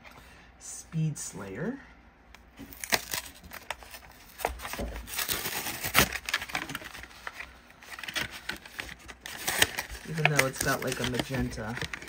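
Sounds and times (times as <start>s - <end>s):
cardboard ripping: 2.7s - 12.0s
plastic blister crackling: 2.7s - 12.0s.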